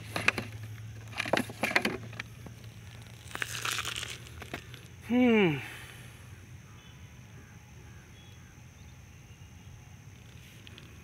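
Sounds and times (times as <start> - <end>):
plastic jar crinkling on gravel: 0.0 - 5.0.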